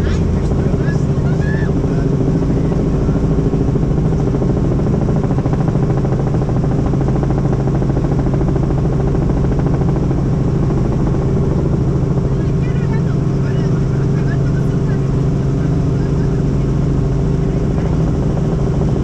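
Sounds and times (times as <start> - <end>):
helicopter engine and rotor drone: 0.0 - 19.0.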